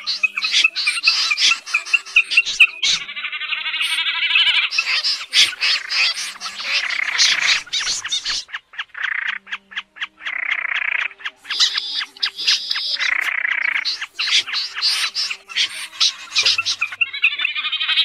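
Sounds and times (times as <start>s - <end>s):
faint background music: 0.0s - 18.0s
snipe calls: 0.0s - 18.0s.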